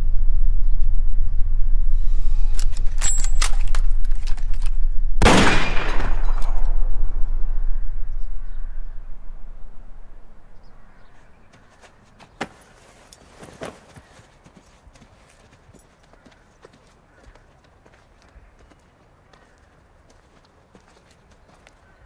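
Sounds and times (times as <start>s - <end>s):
low dark rumble: 0.0s - 2.8s, 3.7s - 11.1s
loud echoing bang: 5.2s - 8.0s.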